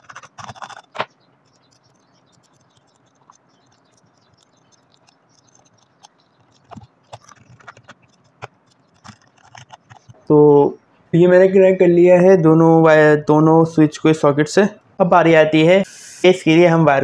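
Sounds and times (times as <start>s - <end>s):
wire scratching and clicking on terminals: 0.0s - 10.4s
faint ticking: 0.0s - 11.0s.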